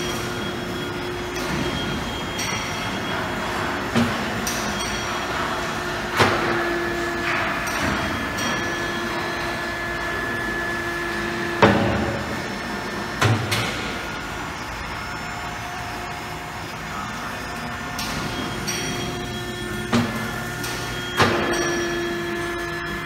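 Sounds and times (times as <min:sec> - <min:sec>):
hydraulic pump motor whine: 0:00.0 - 0:23.0
loud metal clunk: 0:11.5 - 0:12.4, 0:19.9 - 0:22.0.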